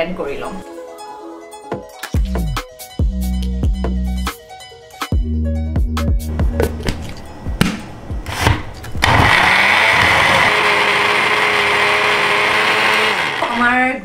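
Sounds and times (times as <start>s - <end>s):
blender running: 9.0s - 13.8s.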